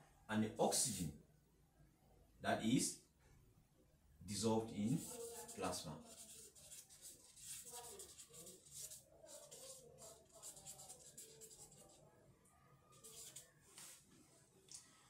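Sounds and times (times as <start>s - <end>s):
marker scratching on paper: 4.8s - 12.0s, 12.9s - 14.1s.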